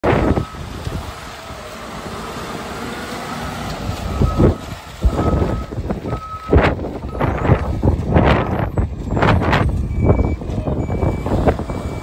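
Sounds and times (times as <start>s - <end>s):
truck diesel engine running: 0.0s - 12.0s
reversing alarm beeps: 3.4s - 7.6s, 9.1s - 12.0s.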